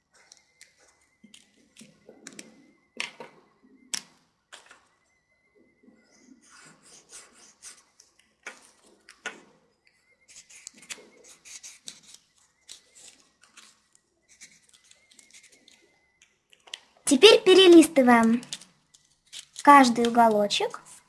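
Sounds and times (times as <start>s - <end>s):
marker scratching on paper: 6.4s - 7.9s, 10.3s - 12.2s, 14.3s - 15.5s
paper rustling: 10.3s - 15.8s.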